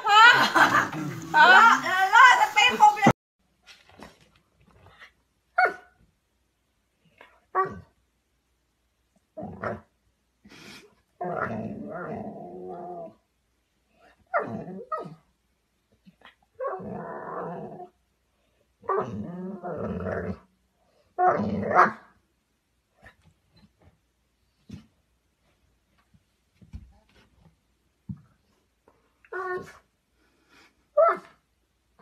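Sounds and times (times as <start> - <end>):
dog barking: 5.6 - 5.9
dog growling: 11.2 - 13.2, 16.6 - 18.0, 18.8 - 20.5.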